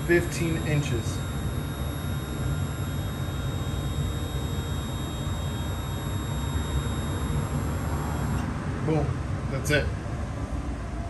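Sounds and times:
low hum: 0.0s - 8.4s
stepper motors whining: 0.0s - 8.5s.

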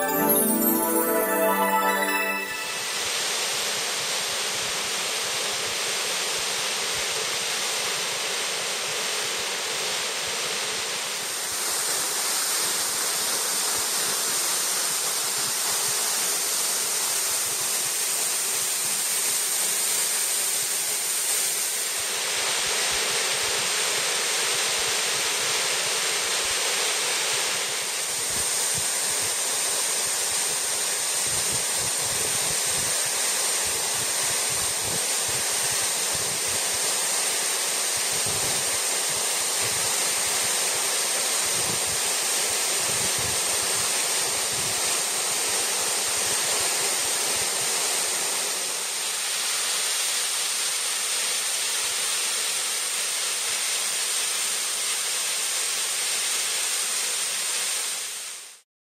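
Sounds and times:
waterfall rushing: 0.0s - 3.1s.

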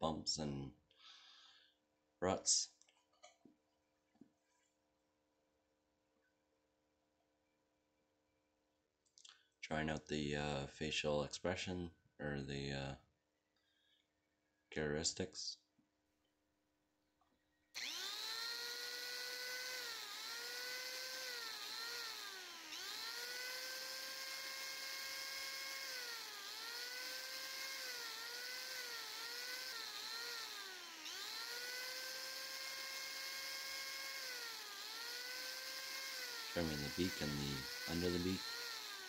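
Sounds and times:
angle grinder whining: 17.8s - 39.0s.

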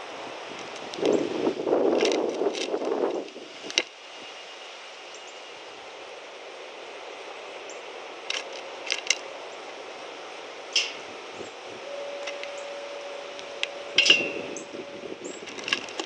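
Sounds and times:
faint outdoor hiss: 0.0s - 16.0s
bird pecking seeds clicks: 8.3s - 9.2s.

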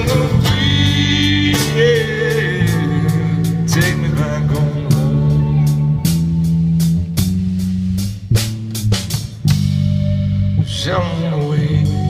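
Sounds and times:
acoustic guitar: 0.0s - 6.6s
electric guitar: 0.0s - 7.4s
drum kit: 0.0s - 12.0s.

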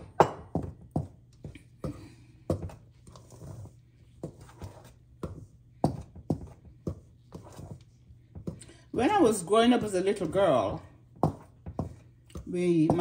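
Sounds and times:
flour scraping and rustling: 2.6s - 8.0s.

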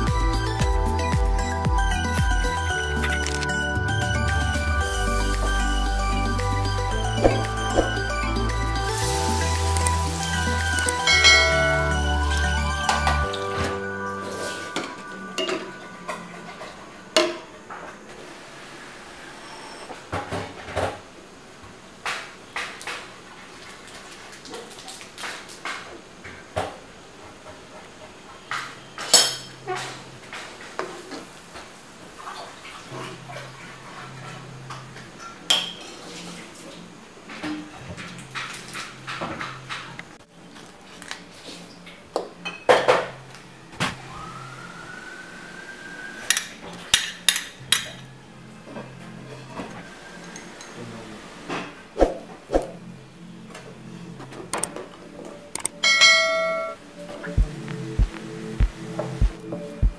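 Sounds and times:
thin rising tone: 0.0s - 17.1s, 44.0s - 46.7s
coconut milk simmering hiss: 8.4s - 12.4s, 47.6s - 51.8s
utensils clinking on wok: 9.4s - 13.5s.

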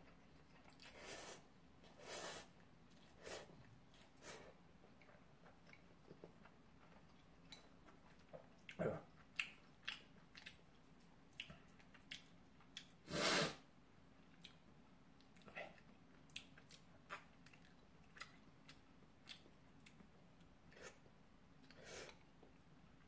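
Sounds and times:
soft chewing: 0.0s - 13.1s, 14.1s - 23.0s.

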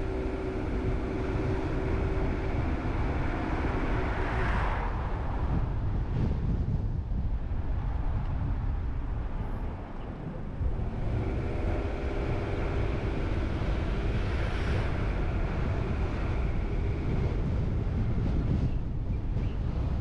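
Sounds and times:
passing van humming: 0.0s - 6.3s, 10.5s - 19.0s
car road and wind noise: 0.0s - 20.0s.

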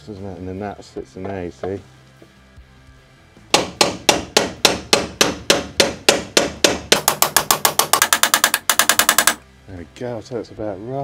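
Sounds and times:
hammer striking metal: 3.5s - 9.4s.

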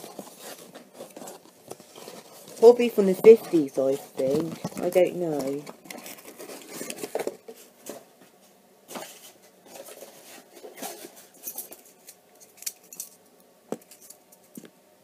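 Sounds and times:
rustling and scraping of objects: 0.0s - 14.8s.

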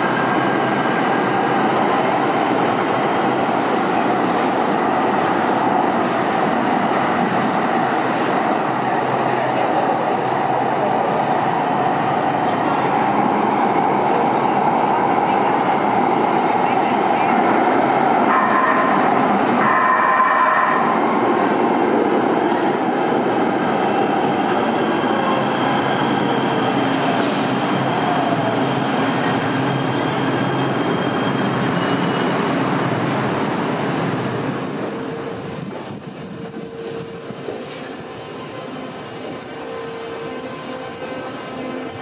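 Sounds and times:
train wheels and motors rumbling: 25.8s - 42.0s.

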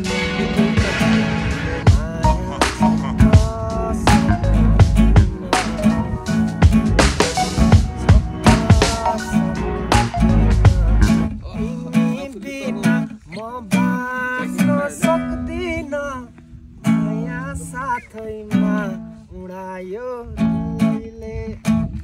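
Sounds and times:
pitch-bending guitar melody: 0.0s - 15.5s
acoustic guitar strumming chords: 0.0s - 19.2s.

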